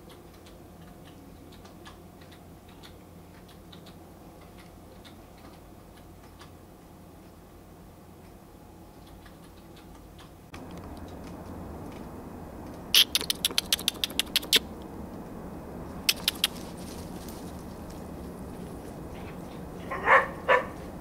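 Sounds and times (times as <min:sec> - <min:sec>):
low background noise: 0:00.0 - 0:21.0
sharp clicks: 0:13.0 - 0:14.7, 0:16.0 - 0:16.7.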